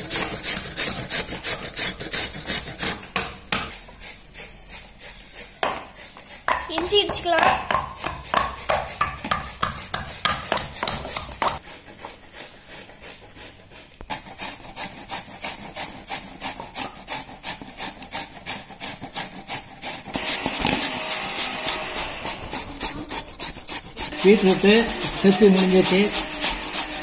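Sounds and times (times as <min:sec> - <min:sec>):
beetroot rasping on a grater: 0:00.0 - 0:27.0
stone pestle pounding in mortar: 0:05.6 - 0:11.6, 0:15.4 - 0:27.0.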